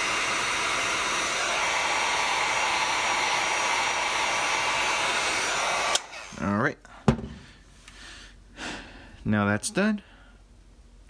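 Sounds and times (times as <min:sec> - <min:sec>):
heat gun blowing air: 0:00.0 - 0:06.5.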